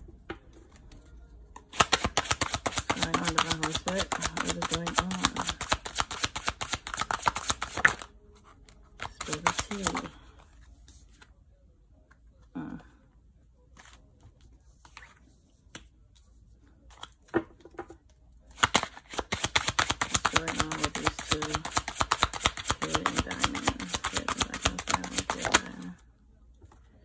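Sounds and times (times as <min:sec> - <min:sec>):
cards being shuffled: 0:00.7 - 0:11.3, 0:13.7 - 0:15.9, 0:18.5 - 0:26.0.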